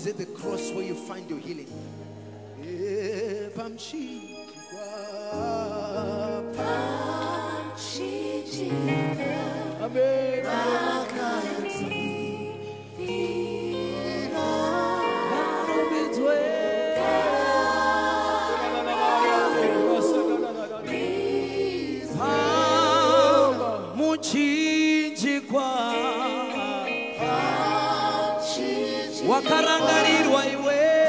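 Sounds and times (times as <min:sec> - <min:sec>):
lead singer singing: 0:02.6 - 0:31.0
backing vocalists singing: 0:04.8 - 0:31.0
keyboard and bass chords: 0:05.7 - 0:25.0, 0:26.0 - 0:31.0.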